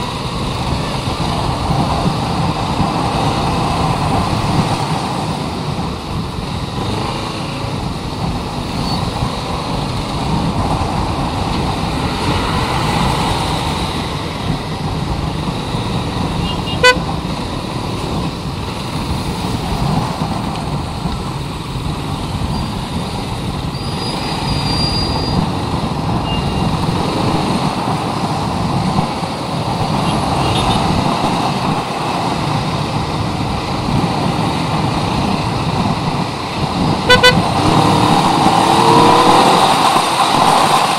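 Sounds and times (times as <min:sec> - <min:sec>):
wind and road noise: 0:00.0 - 0:40.9
horn beep: 0:16.4 - 0:17.0, 0:37.0 - 0:38.0.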